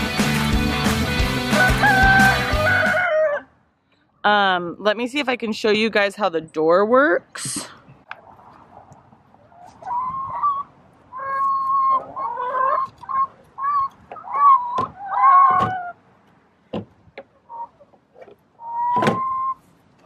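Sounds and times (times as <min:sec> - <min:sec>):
hens clucking: 0:07.5 - 0:16.0, 0:17.1 - 0:20.0.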